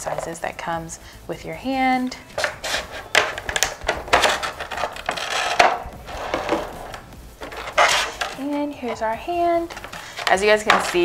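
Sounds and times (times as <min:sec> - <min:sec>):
plastic packaging crackling: 0:02.2 - 0:09.0.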